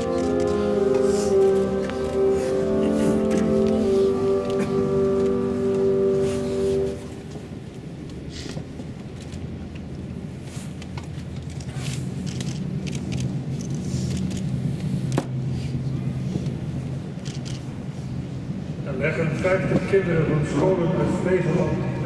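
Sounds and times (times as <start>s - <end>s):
low crowd rumble: 0.0s - 22.0s
small clicks and shuffles: 6.8s - 15.4s.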